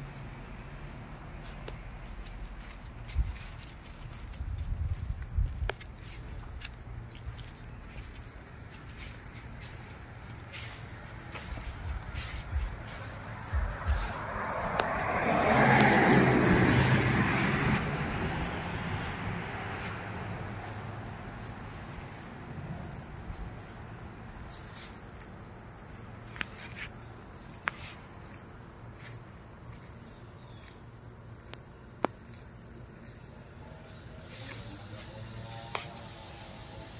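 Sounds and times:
insects chirping: 0.0 - 36.9
car passing: 5.8 - 26.3, 32.5 - 36.9.

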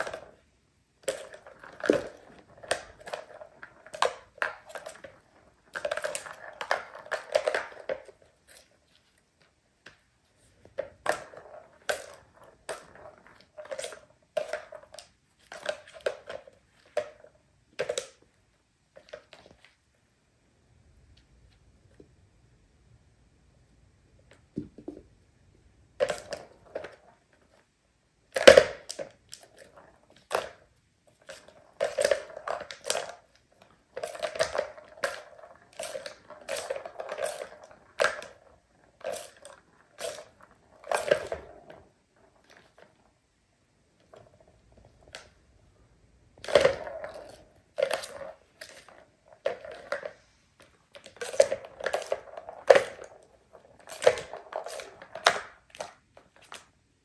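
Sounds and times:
plastic balls rattling in toy track: 0.0 - 9.2, 28.3 - 45.4, 46.4 - 56.7.

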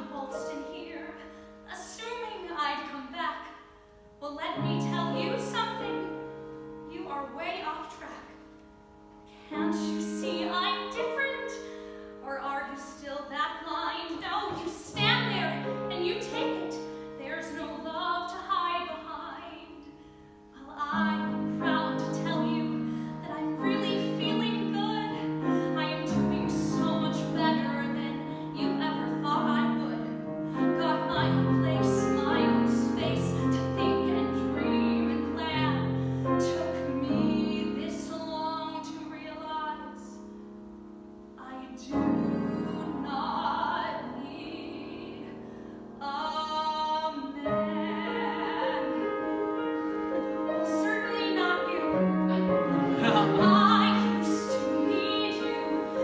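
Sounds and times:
woman singing: 0.0 - 3.5, 4.2 - 8.4, 9.4 - 40.2, 41.4 - 45.4, 46.0 - 56.0
piano accompaniment: 0.0 - 56.0.

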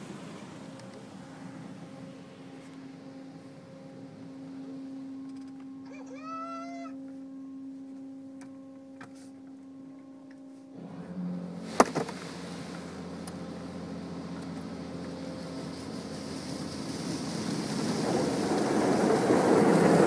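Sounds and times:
water and wash equipment on car: 0.0 - 6.3, 10.7 - 20.0
car wash machine hum: 0.0 - 20.0.

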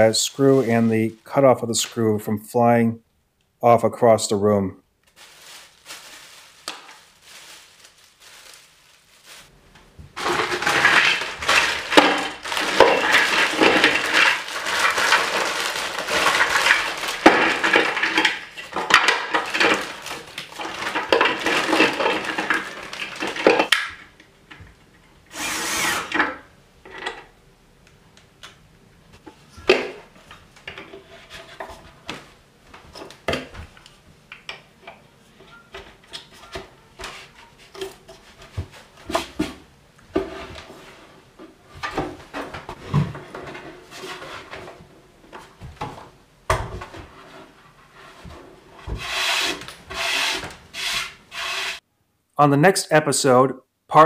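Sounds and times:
plastic bags crinkling: 5.0 - 9.6, 10.2 - 23.8.

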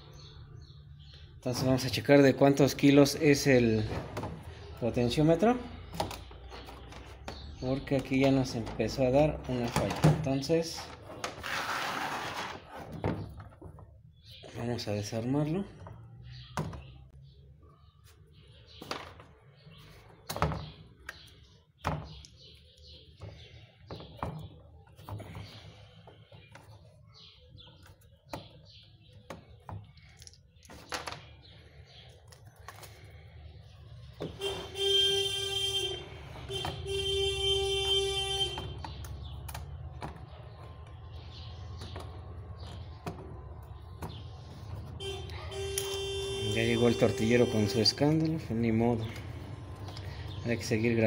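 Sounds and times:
knocks and clicks of handling: 5.4 - 11.4, 18.7 - 19.4, 20.1 - 31.5, 36.3 - 37.2, 37.8 - 45.1
vehicle loud steady tone: 34.3 - 41.2, 44.5 - 48.5.

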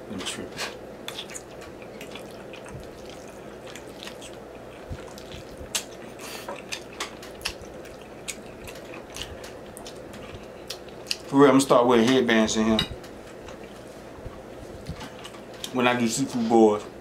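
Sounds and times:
chewing with smacking clicks: 1.0 - 11.3.

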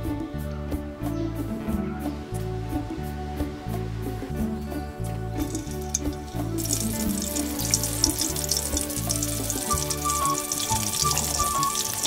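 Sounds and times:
background music: 0.0 - 12.0
food deep-frying in hot oil: 5.4 - 12.0.

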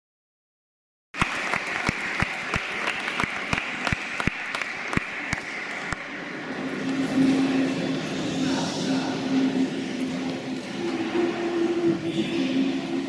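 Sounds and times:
audience applauding: 1.2 - 6.1
close sharp hand claps: 1.2 - 6.1.

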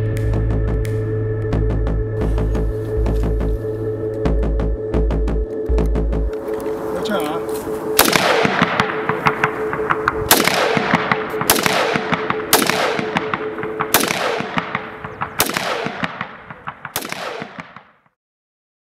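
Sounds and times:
heavy gunshots with echo: 8.0 - 18.0
lighter gunshots: 8.0 - 18.0.

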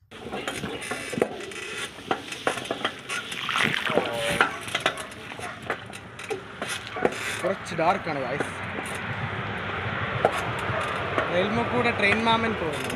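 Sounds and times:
bicycle tyres on dirt path: 0.0 - 12.9
bicycle clicks and rattles: 0.1 - 12.9.

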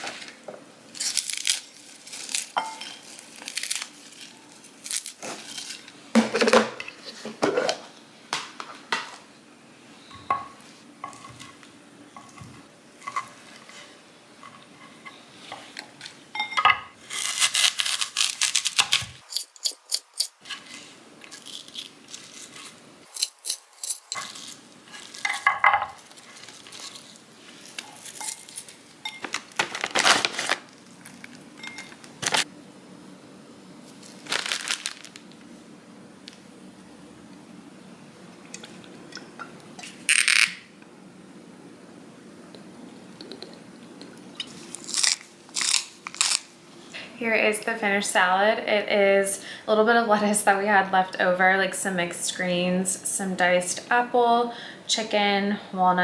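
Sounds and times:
packaging rustling: 0.9 - 5.9, 26.0 - 32.5, 34.0 - 35.3.

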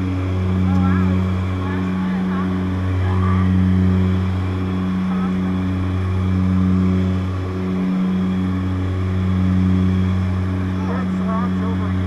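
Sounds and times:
propeller plane engine drone: 0.0 - 12.0.

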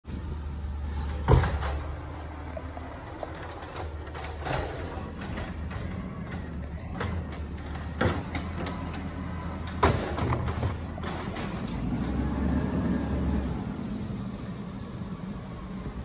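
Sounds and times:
garbage truck engine running: 0.1 - 16.0
side-loader arm lifting cart: 0.1 - 16.0
sharp knocks of cart: 2.9 - 12.2.

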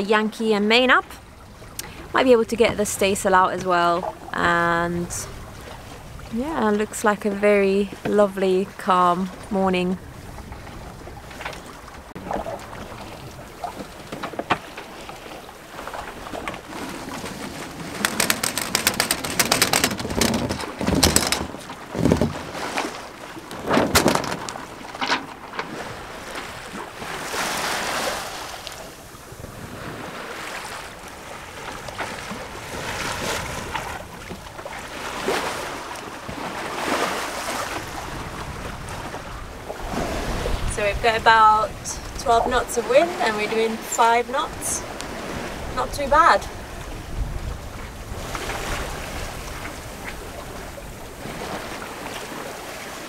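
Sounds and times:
water rushing along hull: 0.0 - 53.0
wind on microphone: 1.0 - 14.4, 15.9 - 24.9, 25.6 - 53.0
sharp clicks and knocks: 17.9 - 22.4, 23.7 - 25.7.

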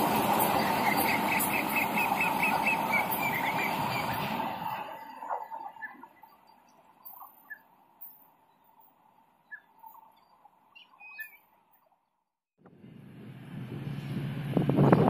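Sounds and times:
faint bird chirps: 9.4 - 11.9.

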